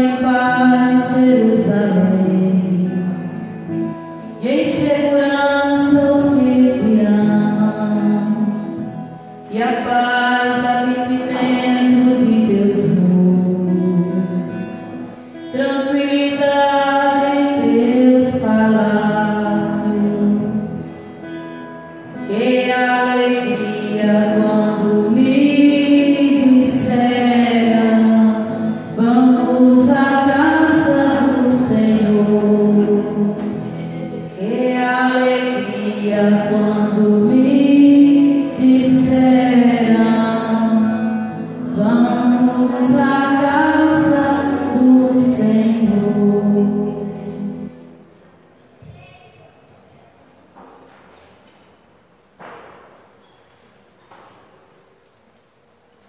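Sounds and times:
person singing: 0:09.5 - 0:21.1, 0:22.2 - 0:47.8.

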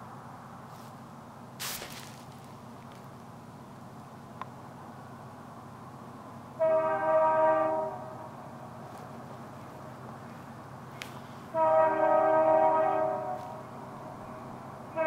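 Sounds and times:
locomotive air horn blasts: 0:06.6 - 0:08.4, 0:11.4 - 0:13.7.

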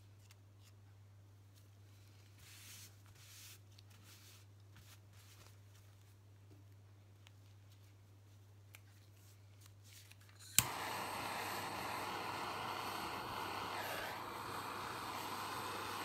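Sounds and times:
electric blower switch click: 0:10.6 - 0:11.3
electric blower rush of air: 0:10.6 - 0:16.0.

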